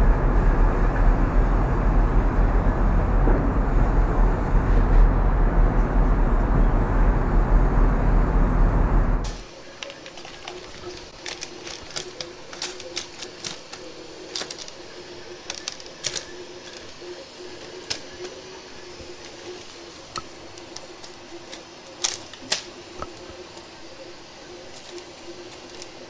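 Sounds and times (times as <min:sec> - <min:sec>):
faint steady hum: 0:00.0 - 0:26.0
hands clicking parts together: 0:09.8 - 0:18.4, 0:19.0 - 0:23.7, 0:24.7 - 0:26.0.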